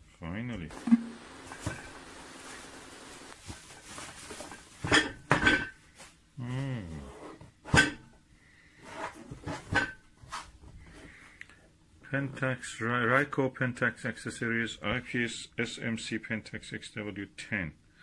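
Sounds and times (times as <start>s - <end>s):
plastic wrap rustling: 0.7s - 5.1s.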